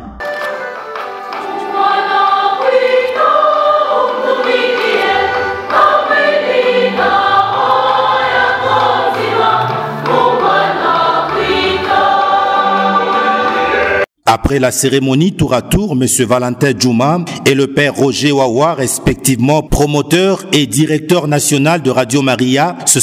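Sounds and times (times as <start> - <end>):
choir singing a hymn: 1.3 - 14.1.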